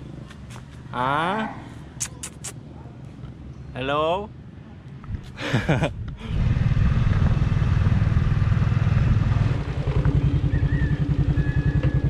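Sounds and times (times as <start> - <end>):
small motorcycle engine chugging: 6.4 - 12.0.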